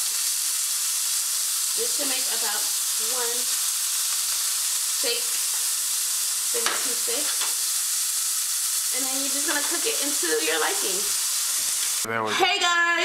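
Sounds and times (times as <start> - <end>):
utensil stirring in pan: 0.0 - 12.1
steak sizzling in a skillet: 0.0 - 13.0
sharp tap against pan: 6.6 - 7.6.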